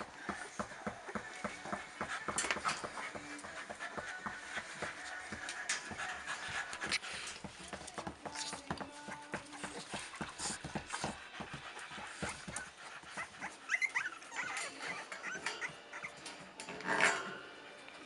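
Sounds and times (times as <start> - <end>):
puppies whimpering: 0.0 - 8.1, 8.8 - 16.6
puppies panting: 0.0 - 16.6
high squeaks: 13.7 - 17.4.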